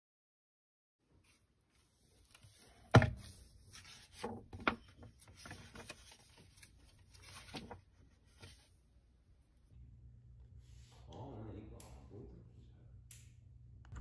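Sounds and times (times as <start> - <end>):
book pages turning: 1.3 - 8.8.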